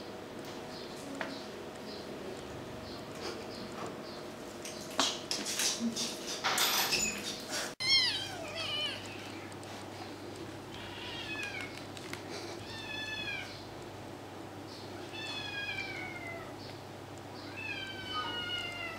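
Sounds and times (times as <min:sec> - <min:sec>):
kitten meowing: 0:07.8 - 0:09.0.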